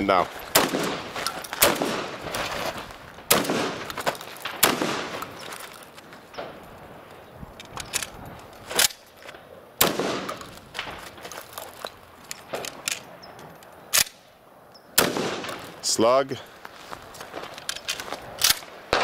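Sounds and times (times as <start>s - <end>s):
shotgun shots: 0.5s - 2.4s, 3.3s - 5.4s, 9.8s - 11.0s, 15.0s - 15.8s, 18.4s - 19.0s.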